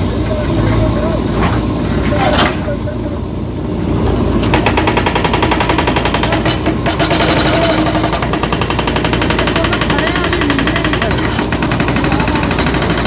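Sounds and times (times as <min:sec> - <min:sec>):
diesel engine drone: 0:00.0 - 0:13.0
hydraulic breaker hammering concrete: 0:04.4 - 0:13.0.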